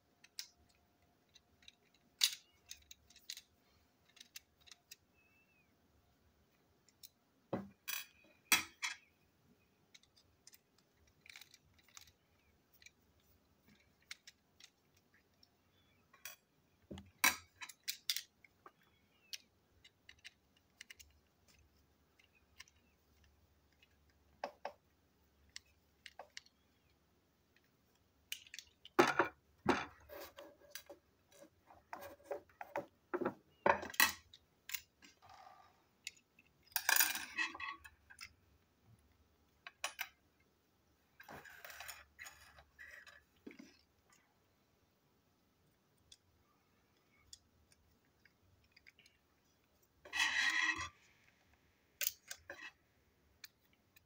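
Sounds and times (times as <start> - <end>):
plastic toy parts clicking and knocking: 0.1 - 5.3, 9.8 - 35.3, 52.0 - 54.0.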